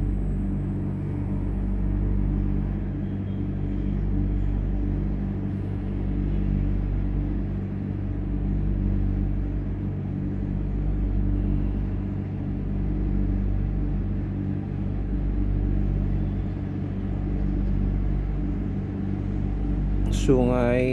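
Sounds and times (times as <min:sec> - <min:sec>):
low mechanical hum: 0:00.0 - 0:20.9.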